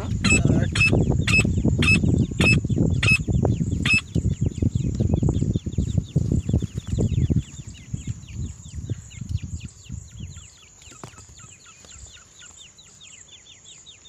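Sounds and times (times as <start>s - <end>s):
faint down-slurred bird chirps: 0.0s - 14.0s.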